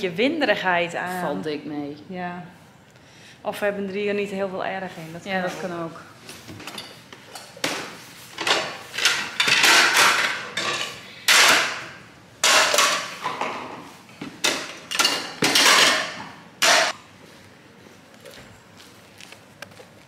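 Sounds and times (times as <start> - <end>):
dishes clattering in a plastic tub: 8.4 - 16.9.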